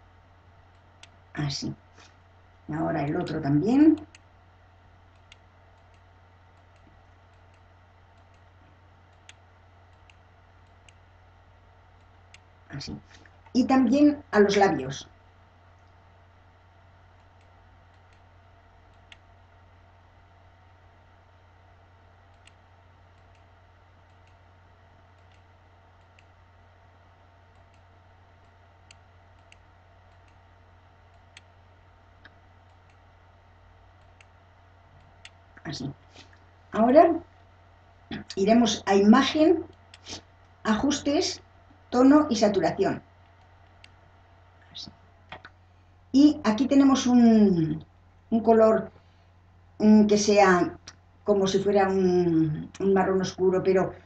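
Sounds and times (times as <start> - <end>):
low hum: 0.0 - 54.0
faint mouse clicks: 5.1 - 8.5, 9.1 - 11.0, 17.2 - 18.3, 18.9 - 19.3, 22.3 - 24.5, 25.1 - 26.4, 27.5 - 30.4, 31.1 - 31.5, 32.2 - 33.1, 34.0 - 34.4, 35.0 - 36.5, 43.2 - 45.6.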